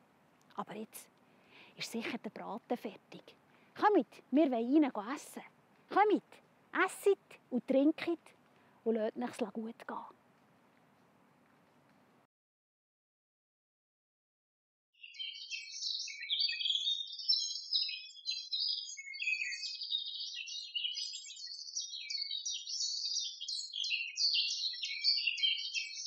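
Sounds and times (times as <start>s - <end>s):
songbirds chirping and singing: 15.0s - 26.0s.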